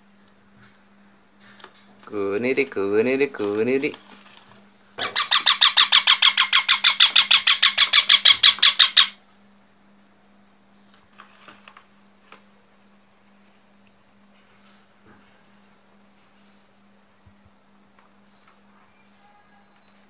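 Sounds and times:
parakeet squawking: 5.0s - 9.2s.

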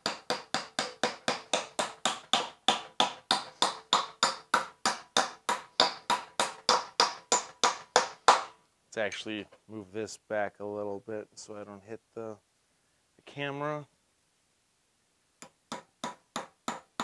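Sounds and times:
hammer driving nail into wood: 0.0s - 8.6s, 15.4s - 17.0s.

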